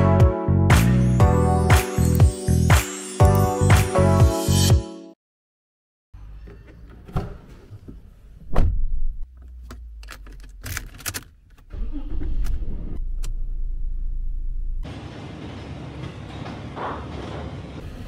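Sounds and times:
key clicking in ignition: 9.7 - 11.7.

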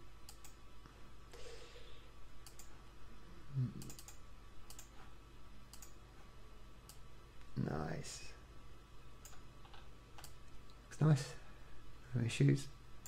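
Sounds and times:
computer mouse clicking: 0.2 - 0.6, 2.4 - 2.8, 3.8 - 5.1, 5.7 - 6.0, 9.2 - 10.6.

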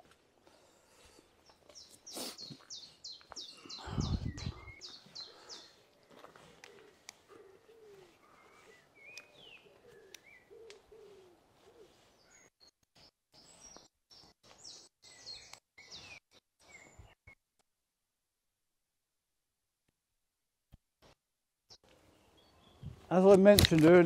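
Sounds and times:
small birds chirping: 0.4 - 17.4, 21.0 - 23.5
pigeon cooing: 3.8 - 12.4.

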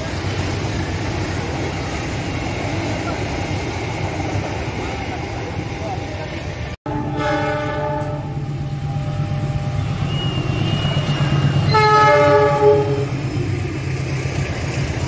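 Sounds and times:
low drone of train: 0.0 - 15.0
locomotive multi-tone horn: 6.9 - 8.4, 9.7 - 13.4.

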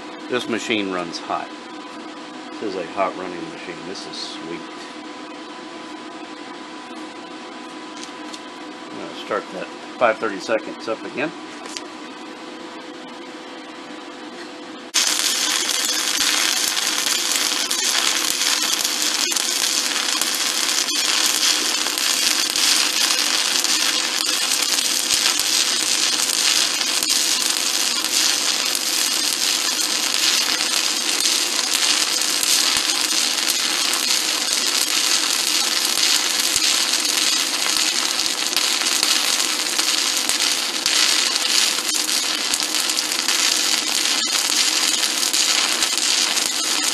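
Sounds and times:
welding arc crackling and hissing: 14.9 - 46.9.

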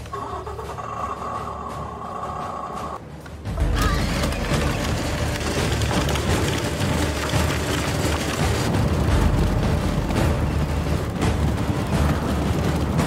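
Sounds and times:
toy tank crunching over gravel: 4.0 - 8.8.

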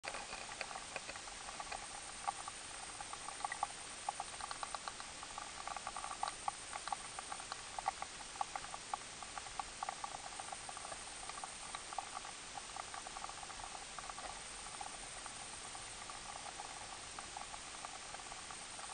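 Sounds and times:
soft clicks of stones: 0.1 - 15.0.

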